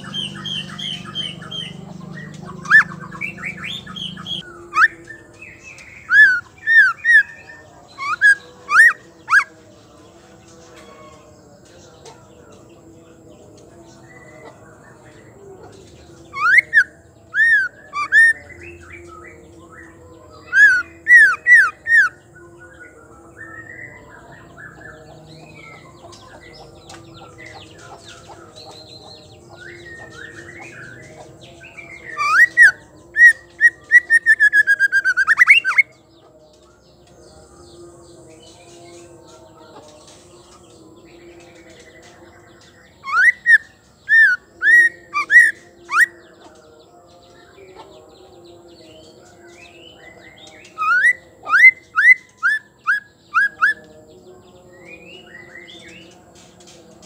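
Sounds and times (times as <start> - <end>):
bird singing whistled notes: 0.0 - 9.5, 16.3 - 36.0, 42.5 - 46.2, 49.0 - 56.2
soft bird twittering: 0.0 - 9.8, 13.4 - 46.6, 49.0 - 57.0.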